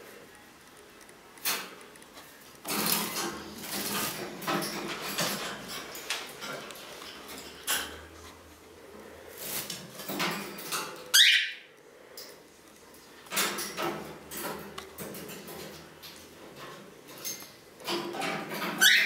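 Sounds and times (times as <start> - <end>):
light clicks and rattles on cage: 0.7 - 11.2, 12.1 - 19.0
parrot shrill call: 11.1 - 11.6.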